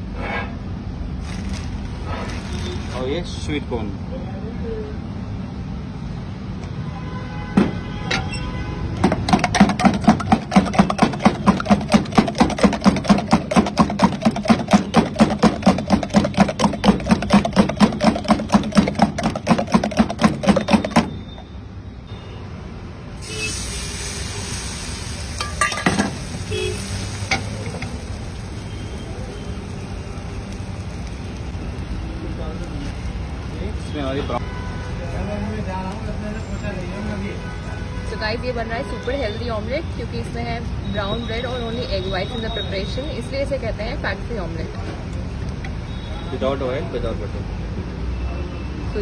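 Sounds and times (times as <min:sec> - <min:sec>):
mixture sizzling in hot pan: 0:09.5 - 0:20.7, 0:23.2 - 0:34.1.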